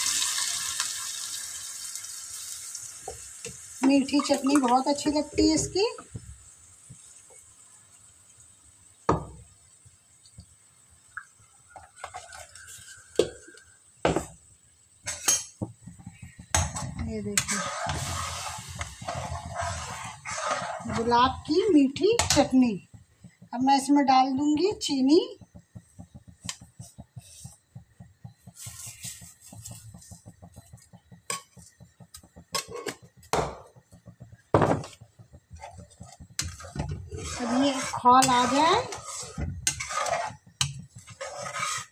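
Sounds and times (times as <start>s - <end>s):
sugar pouring hiss: 0.0s - 4.8s, 17.2s - 20.9s, 26.0s - 31.9s
kitchen utensils knocking and clinking: 30.0s - 41.9s.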